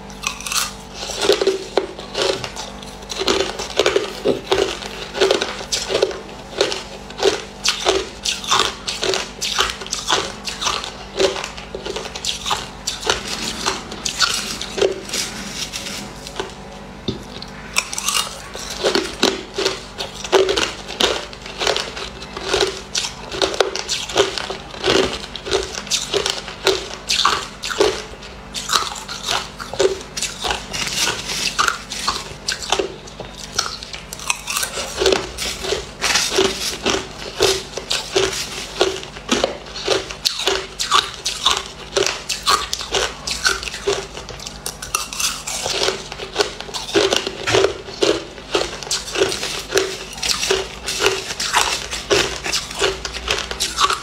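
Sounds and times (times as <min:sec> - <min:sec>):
person crunching ice: 0:00.2 - 0:16.5, 0:17.7 - 0:54.0.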